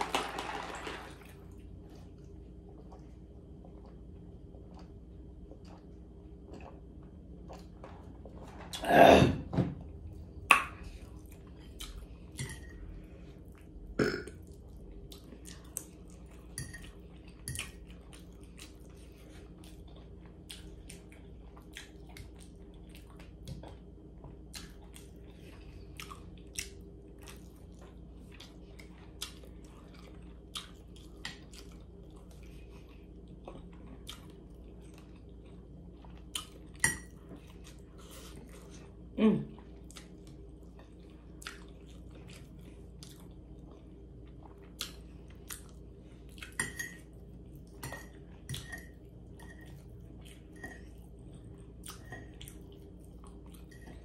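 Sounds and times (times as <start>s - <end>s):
person chewing with mouth smacks: 10.6s - 12.4s, 14.4s - 39.0s, 39.6s - 46.6s.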